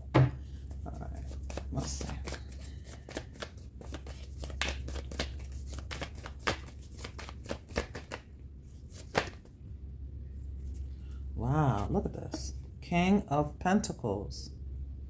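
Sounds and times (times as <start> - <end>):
steady low hum: 0.0 - 15.0
cards being shuffled: 0.5 - 9.5
card snap: 9.0 - 9.4.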